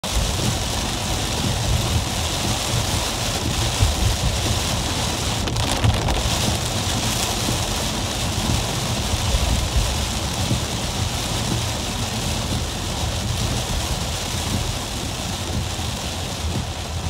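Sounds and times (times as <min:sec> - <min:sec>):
car driving on wet road: 0:00.0 - 0:17.0
heavy rain on car roof: 0:00.0 - 0:17.0.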